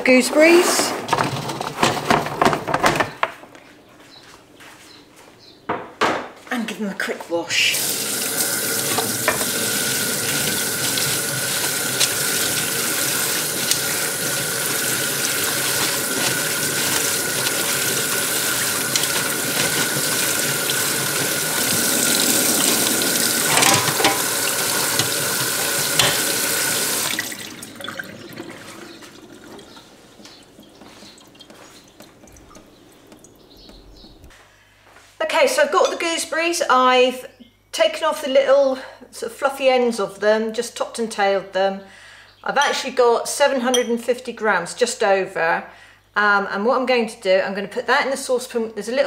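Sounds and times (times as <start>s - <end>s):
water splashing over fruit: 7.7s - 33.5s
tap running into steel sink: 8.1s - 27.7s.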